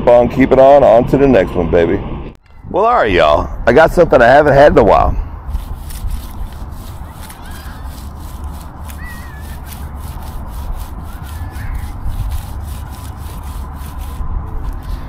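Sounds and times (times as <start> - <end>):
rubbing and scraping: 5.5 - 15.0.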